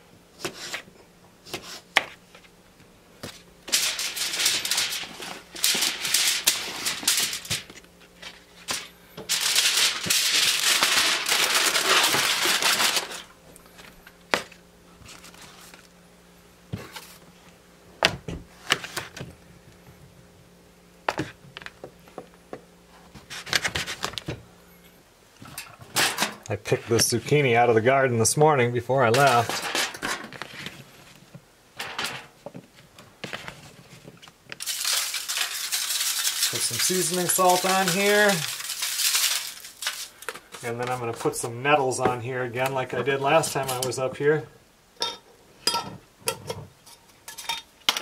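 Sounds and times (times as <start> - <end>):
loud rustling and crinkling: 3.2 - 15.9, 29.0 - 44.0
objects being handled: 29.1 - 41.4.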